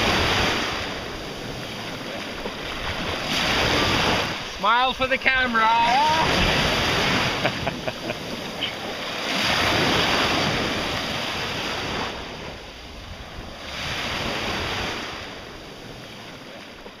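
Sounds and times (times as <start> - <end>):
small waves washing ashore: 0.0 - 17.0
water splashes: 0.0 - 17.0.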